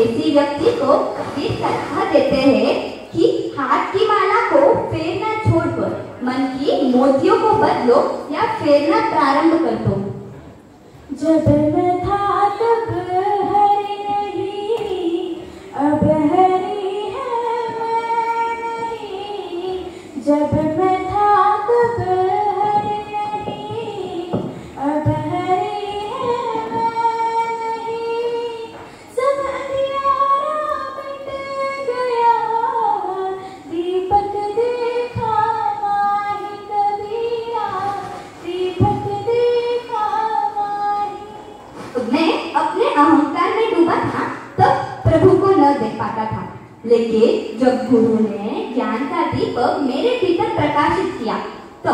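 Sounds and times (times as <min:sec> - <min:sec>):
girl singing unaccompanied: 0:11.1 - 0:47.5.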